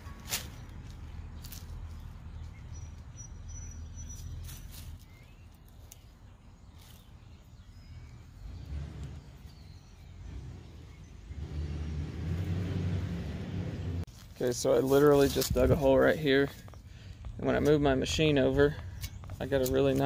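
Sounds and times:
faint bird chirps: 1.5s - 11.6s
low rumble: 7.7s - 14.1s.

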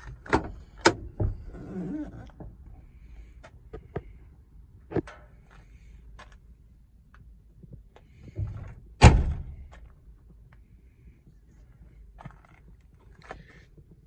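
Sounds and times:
truck door slamming: 8.4s - 9.7s.

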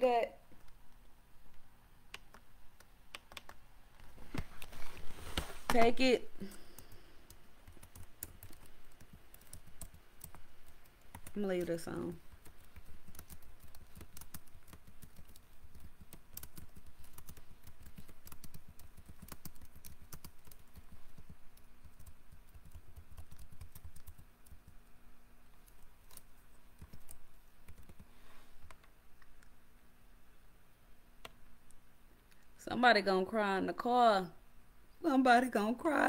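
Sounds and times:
keyboard typing: 2.1s - 3.6s, 5.7s - 24.9s, 25.5s - 29.5s.

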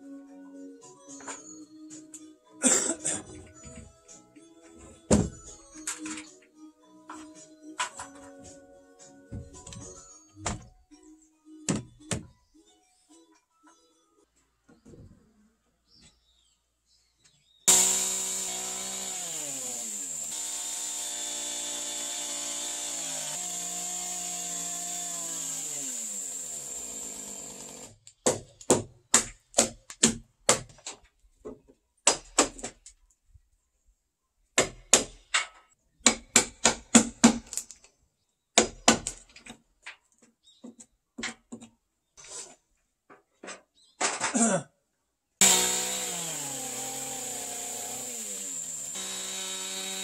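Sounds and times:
chainsaw cutting timber: 17.7s - 28.0s, 45.4s - 50.0s
hammer striking timber: 17.7s - 30.6s, 36.0s - 37.4s.

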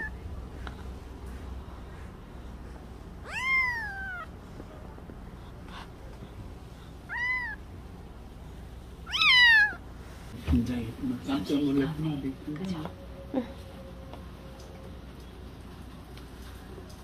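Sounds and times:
kitten mewing: 3.2s - 4.3s, 7.0s - 7.6s, 9.0s - 9.8s.

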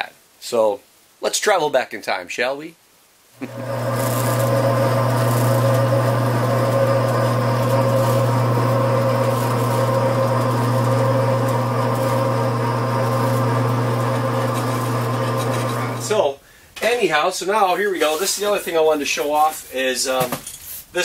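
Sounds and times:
bandsaw motor hum: 3.4s - 16.2s.

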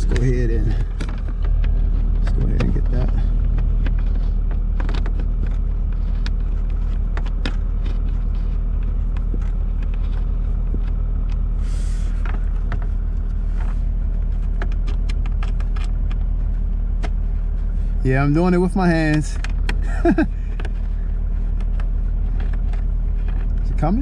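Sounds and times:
car engine idling: 0.0s - 24.0s.

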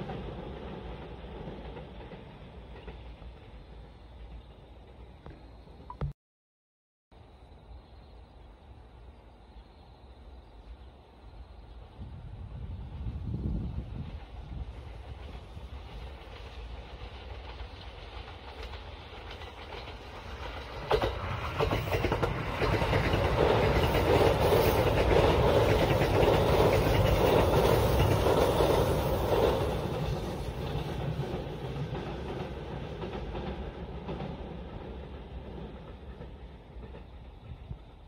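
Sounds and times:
train rumbling on rails: 0.0s - 5.9s, 7.2s - 38.0s
wheels clicking over rail joints: 14.1s - 38.0s.

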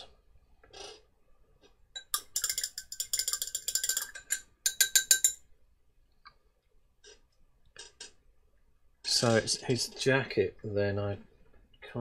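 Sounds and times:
paintbrush clinking against a pot: 2.0s - 5.5s.

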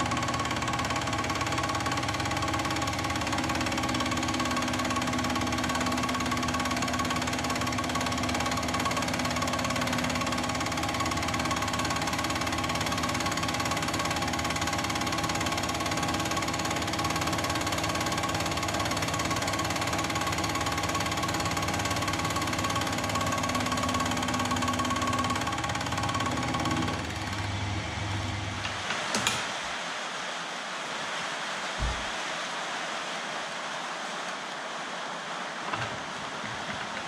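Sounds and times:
mill motor whining: 0.0s - 29.4s.

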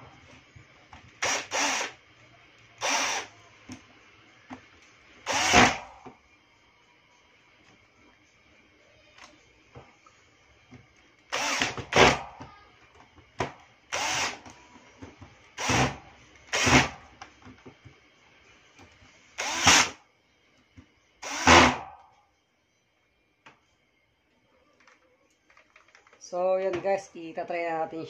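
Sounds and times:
cordless drill driving screws: 1.2s - 2.0s, 2.8s - 3.3s, 5.3s - 5.8s, 11.3s - 12.2s, 13.9s - 14.4s, 15.6s - 16.9s, 19.4s - 20.0s, 21.2s - 21.8s.

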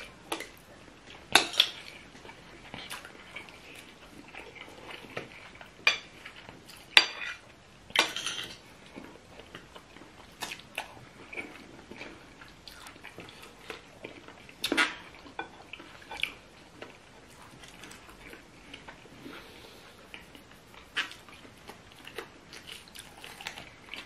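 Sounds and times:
chewing and biting: 8.9s - 24.0s.

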